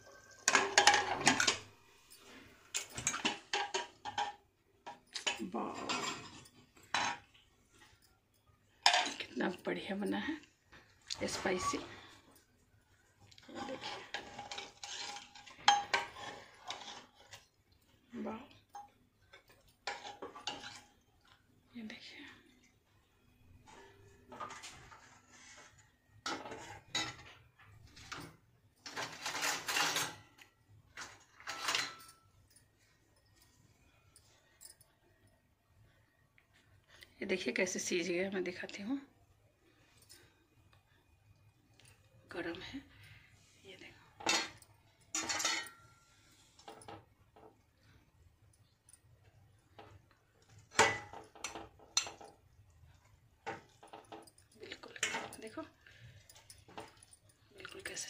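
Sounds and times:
steel ladle scraping and clinking: 0:13.4 - 0:17.6, 0:23.7 - 0:32.2, 0:44.2 - 0:47.0.

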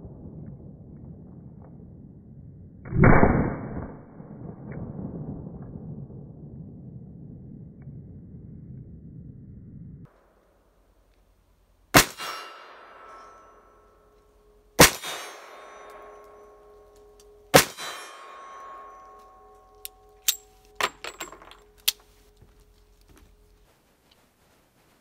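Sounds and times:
long metallic ringing: 0:12.2 - 0:23.7.

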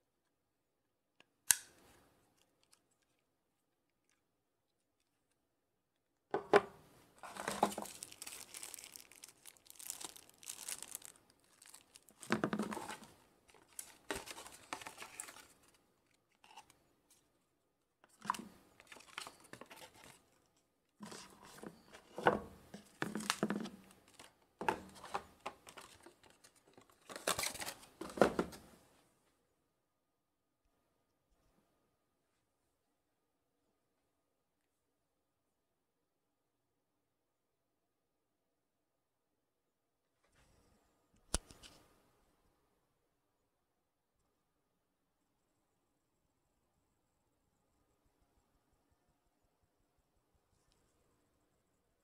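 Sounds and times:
packaging crinkling and rustling: 0:07.2 - 0:16.7, 0:18.2 - 0:20.4, 0:22.8 - 0:28.2.

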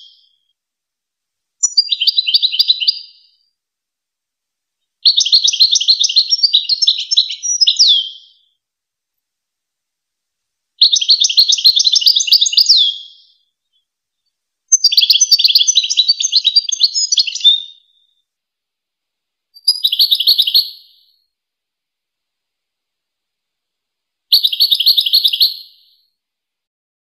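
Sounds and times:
finch twittering song: 0:01.6 - 0:03.3, 0:14.7 - 0:18.1, 0:19.6 - 0:21.1, 0:24.3 - 0:26.0.

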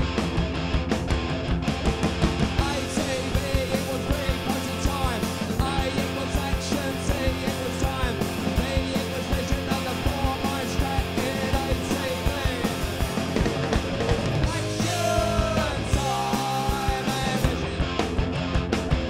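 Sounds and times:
punk rock band playing: 0:00.0 - 0:19.0.

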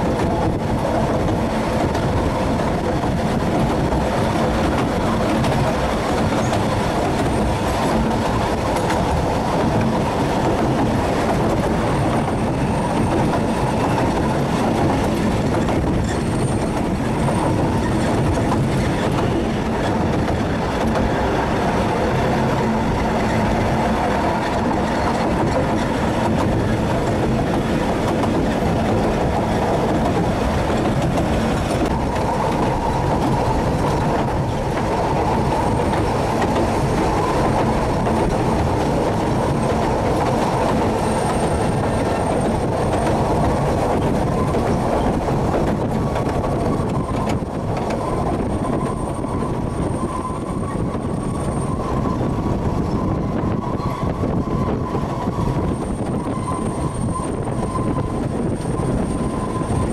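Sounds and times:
train wheels rumbling on rails: 0:00.0 - 0:59.9
faint high squeal: 0:52.8 - 0:59.9.

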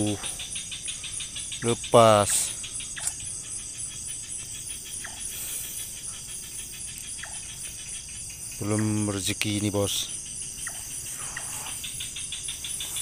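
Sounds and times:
high insect drone: 0:00.0 - 0:13.0
insect pulsing trill: 0:00.0 - 0:13.0
low insect chirp: 0:00.0 - 0:13.0.

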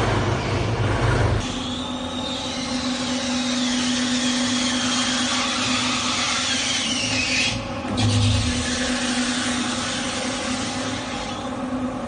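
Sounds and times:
concrete mixer humming: 0:00.0 - 0:12.0.

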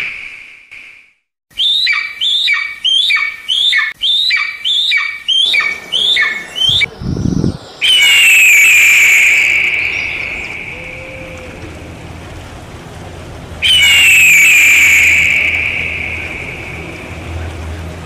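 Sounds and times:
bird long high whistle: 0:01.5 - 0:11.8, 0:13.6 - 0:17.5
bird of prey squealing calls: 0:01.6 - 0:06.9, 0:07.8 - 0:11.7, 0:13.6 - 0:17.0
low rumble: 0:05.7 - 0:07.8, 0:09.4 - 0:18.0.

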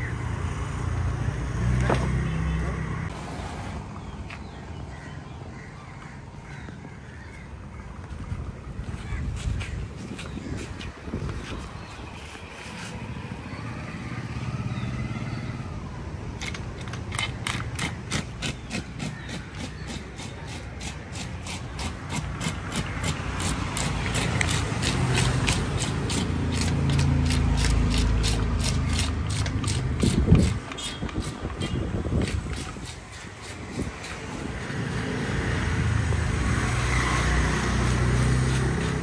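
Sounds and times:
hand scaler scraping fish: 0:16.4 - 0:34.5.

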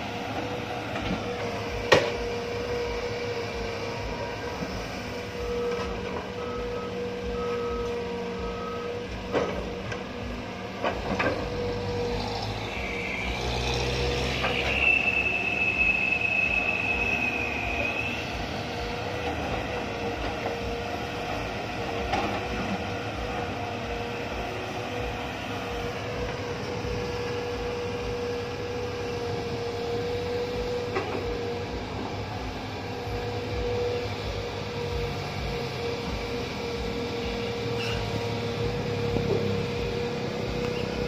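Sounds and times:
excavator engine and hydraulics whine: 0:00.0 - 0:41.0.

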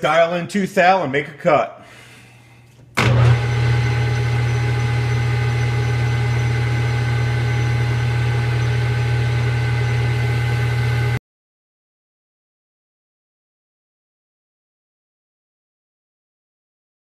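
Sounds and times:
metal lathe running: 0:03.0 - 0:11.2.

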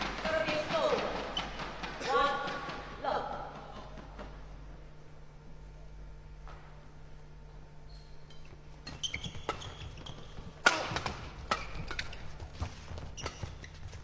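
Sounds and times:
rackets hitting shuttlecock: 0:09.2 - 0:13.6.

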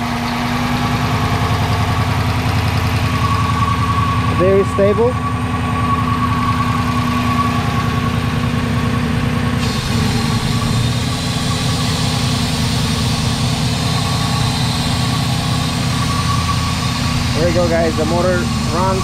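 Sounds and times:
car engine idling: 0:00.0 - 0:19.0
high hiss: 0:09.6 - 0:19.0.

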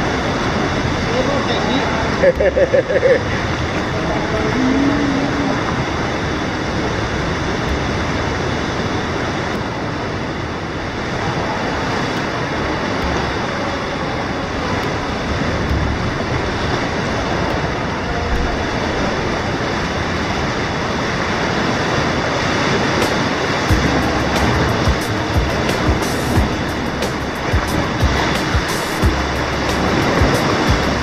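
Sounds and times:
sea water roaring in a cave: 0:00.0 - 0:31.0
deep water thuds: 0:22.9 - 0:31.0.

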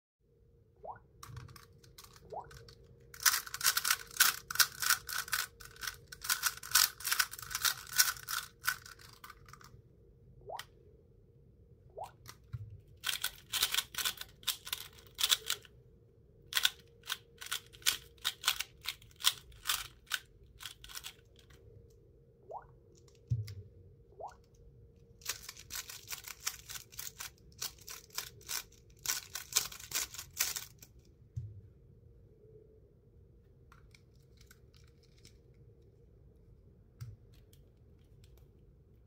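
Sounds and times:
puzzle cube plastic clicking: 0:01.2 - 0:09.8, 0:12.2 - 0:15.7, 0:16.5 - 0:21.6, 0:25.2 - 0:31.1.

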